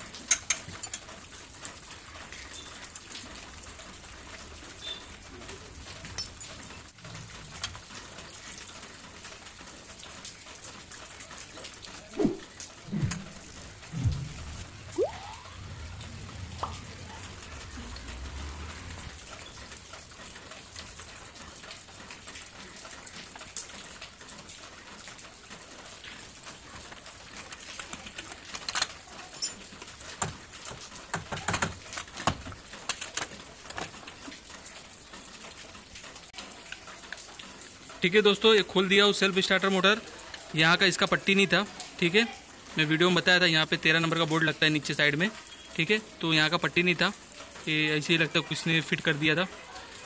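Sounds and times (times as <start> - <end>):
metal clinks: 6.2 - 6.7
low rumble: 12.2 - 19.9.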